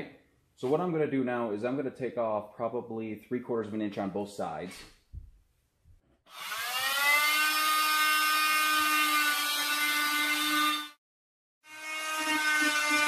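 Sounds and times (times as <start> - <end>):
power tool high whine: 6.3 - 11.0, 11.7 - 13.0.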